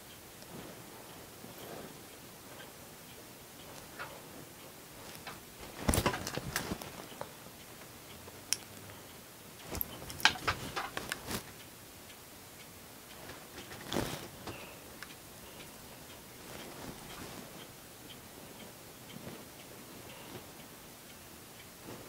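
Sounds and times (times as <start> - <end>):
makeup items clicking and tapping: 9.7 - 11.4.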